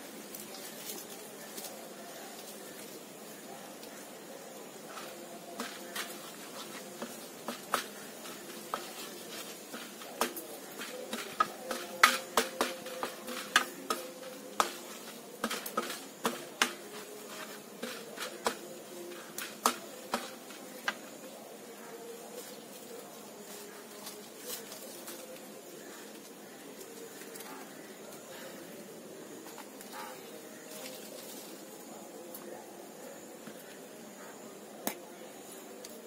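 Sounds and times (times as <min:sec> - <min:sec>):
wooden spatula scraping metal pan: 0:05.0 - 0:20.6.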